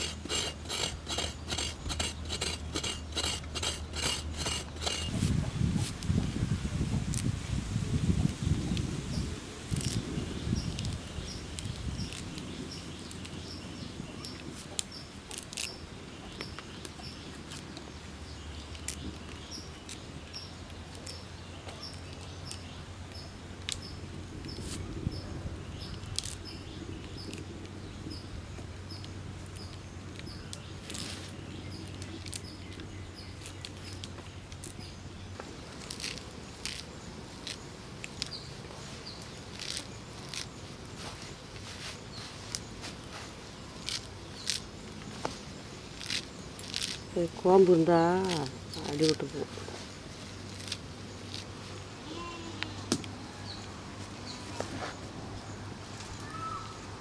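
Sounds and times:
leaves rustling and snapping: 0:04.7 - 0:13.5, 0:14.1 - 0:18.0, 0:18.6 - 0:25.0, 0:25.9 - 0:27.8, 0:28.6 - 0:55.0.

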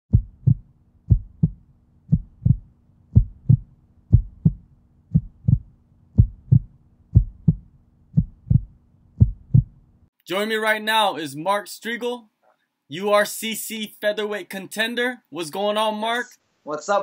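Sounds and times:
heartbeat thumps: 0:00.1 - 0:09.8.

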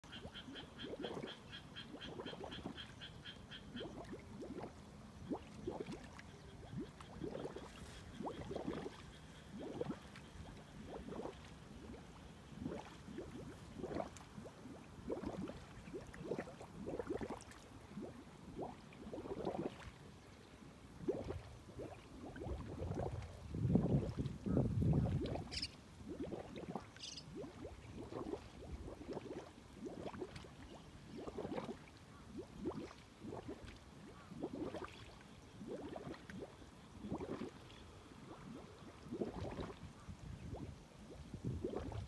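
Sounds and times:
frogs croaking: 0:00.0 - 0:04.7, 0:05.3 - 0:11.4.

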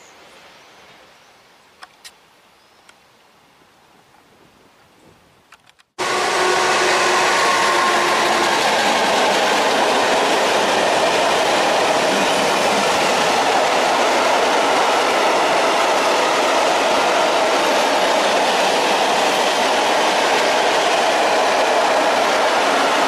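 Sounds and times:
freight train wheels rushing on rails: 0:06.0 - 0:23.0.

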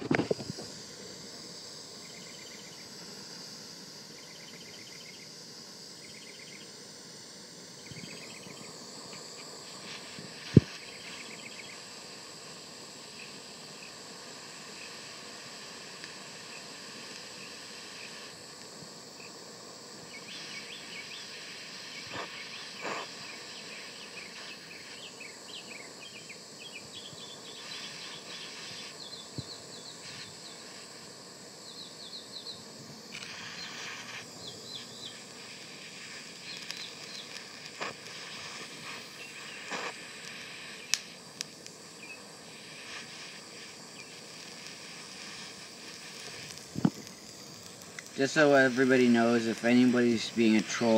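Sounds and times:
butane torch flame hissing: 0:00.0 - 0:50.9
sharp ticks: 0:36.4 - 0:41.8.

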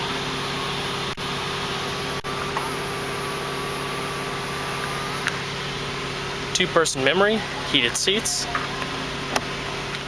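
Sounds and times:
vehicle engine idling: 0:00.0 - 0:10.0
electric motor whine: 0:02.2 - 0:05.7.

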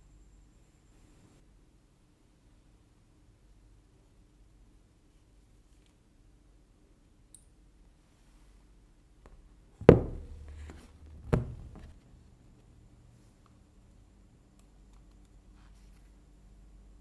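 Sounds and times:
phone knocking on table: 0:09.8 - 0:11.9.

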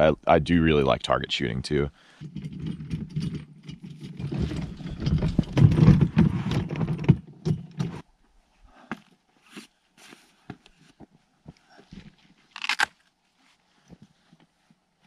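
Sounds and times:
plastic cart rattling over rocks: 0:02.4 - 0:08.0.

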